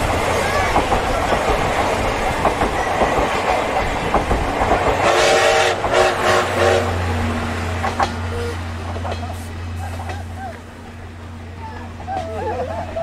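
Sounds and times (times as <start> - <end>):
train wheels clattering over rails: 0.0 - 13.0
train whistle blasts: 5.0 - 7.0.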